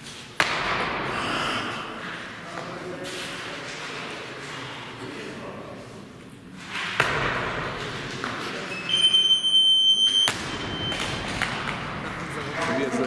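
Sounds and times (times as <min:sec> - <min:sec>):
crowd noise: 0:00.5 - 0:13.0
high buzzer beep: 0:08.7 - 0:11.0.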